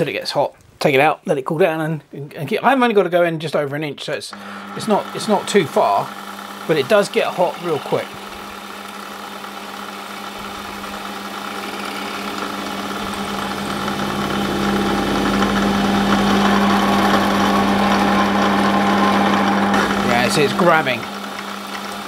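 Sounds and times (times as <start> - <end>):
drill boring into metal: 4.3 - 22.0
metal lathe humming: 4.3 - 22.0.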